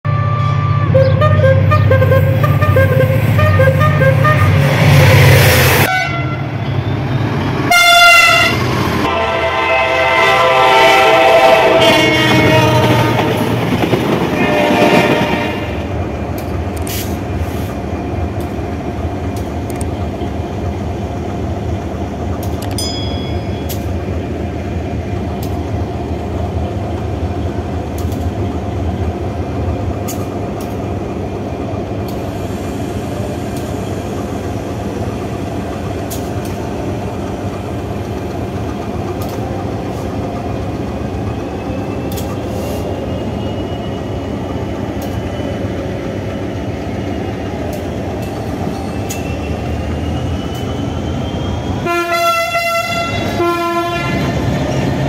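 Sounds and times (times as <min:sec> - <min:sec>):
diesel locomotive horn: 0:00.1 - 0:05.0, 0:05.7 - 0:06.6, 0:07.7 - 0:13.6, 0:14.2 - 0:16.0, 0:51.8 - 0:54.8
diesel locomotive engine rumble: 0:00.1 - 0:55.0.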